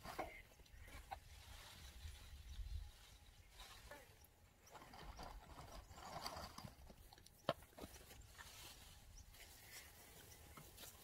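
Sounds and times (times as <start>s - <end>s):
rustling of mulch scooped by hand: 0.0s - 4.2s, 7.9s - 11.0s.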